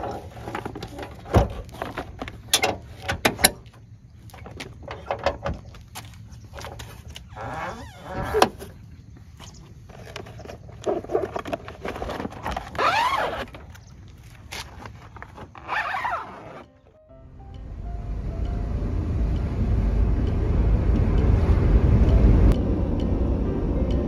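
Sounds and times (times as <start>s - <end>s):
plastic sheet rustling and scraping: 0.0s - 3.0s, 9.4s - 16.7s.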